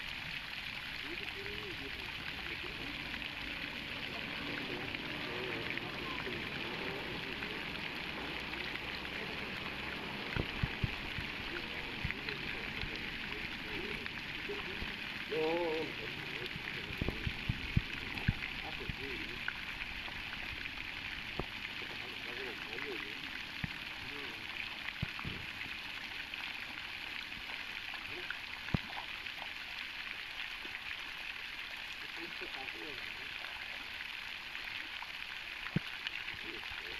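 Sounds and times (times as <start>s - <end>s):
fountain water splashing: 0.0s - 36.9s
faint indistinct voices: 1.0s - 19.4s.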